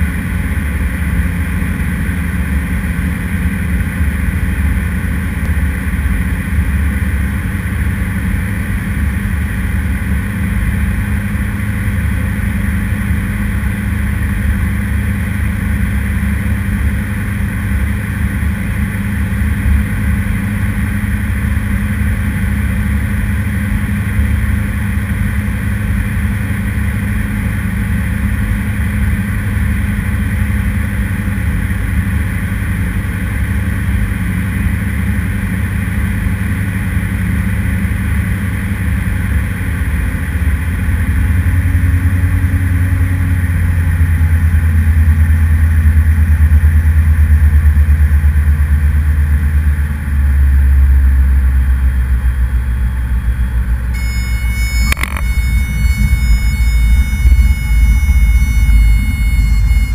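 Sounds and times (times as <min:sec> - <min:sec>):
aircraft engine and propeller droning: 0:00.0 - 0:59.9.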